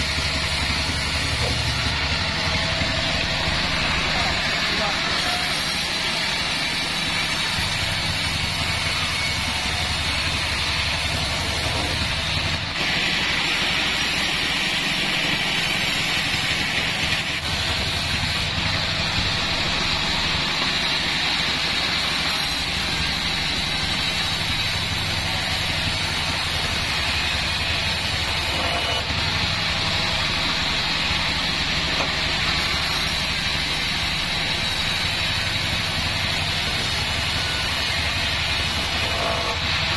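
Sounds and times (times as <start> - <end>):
low motor hum: 0.0 - 5.1
saw blade cutting through wood: 0.0 - 39.9.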